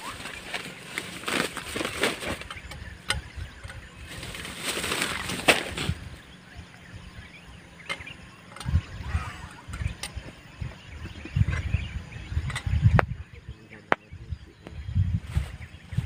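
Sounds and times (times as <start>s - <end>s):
plastic bag rustling: 0.0s - 2.6s, 4.0s - 6.0s.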